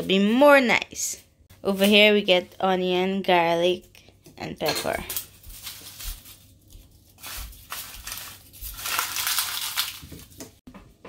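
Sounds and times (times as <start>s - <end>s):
garlic skins crackling: 5.1s - 10.6s.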